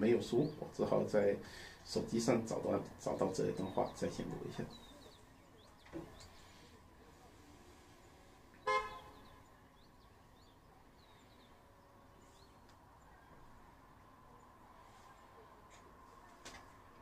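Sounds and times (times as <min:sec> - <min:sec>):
car horn toot: 0:08.6 - 0:09.4.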